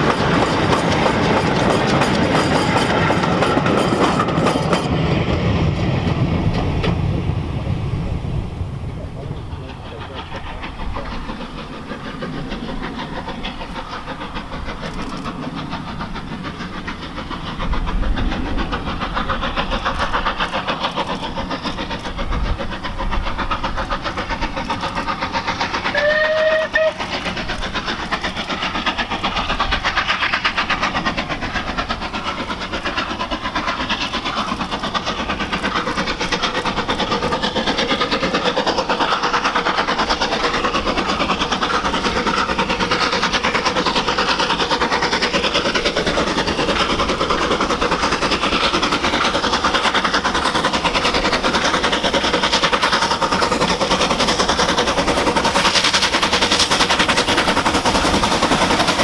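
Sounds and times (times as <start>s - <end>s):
steam locomotive exhaust beating: 0.0s - 59.0s
steam whistle blast: 25.9s - 27.0s.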